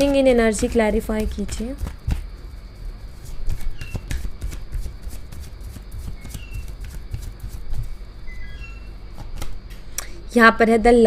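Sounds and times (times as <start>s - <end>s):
cards being shuffled by hand: 3.1s - 8.0s.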